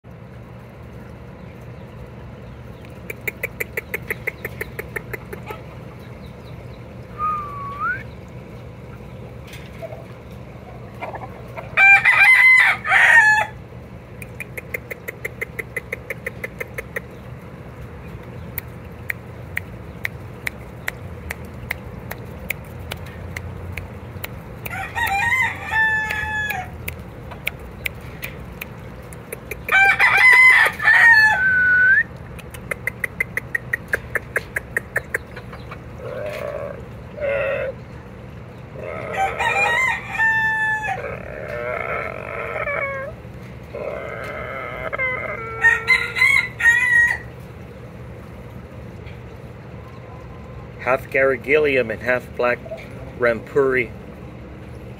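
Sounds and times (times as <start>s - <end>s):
low clucks: 2.8s - 6.6s, 14.1s - 17.5s, 18.2s - 25.3s, 26.0s - 30.8s, 32.1s - 37.9s
roosters crowing: 11.0s - 13.8s, 24.6s - 26.9s, 29.5s - 32.1s, 36.0s - 37.8s, 38.7s - 47.5s.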